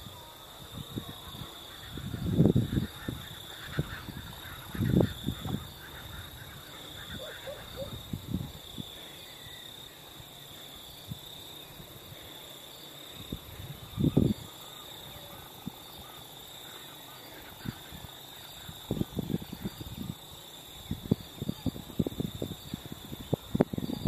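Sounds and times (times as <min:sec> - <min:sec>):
high-pitched insect drone: 0:00.0 - 0:24.0
faint animal calls: 0:01.0 - 0:09.6.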